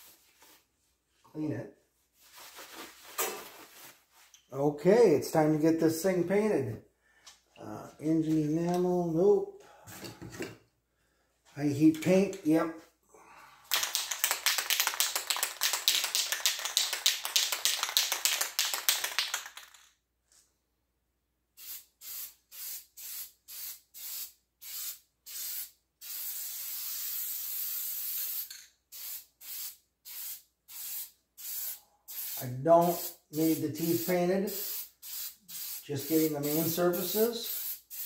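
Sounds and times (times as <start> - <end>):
spray can ball rattling: 13.7 - 20.0, 30.2 - 38.0
spray paint hissing: 21.6 - 38.0.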